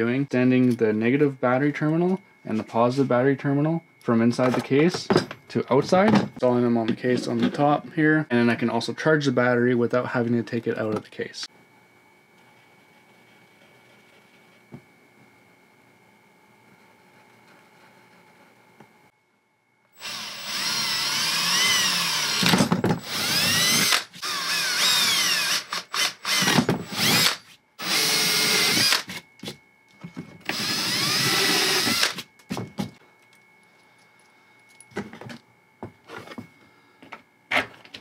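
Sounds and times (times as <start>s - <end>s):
power drill whining: 20.0s - 29.2s, 30.4s - 32.2s.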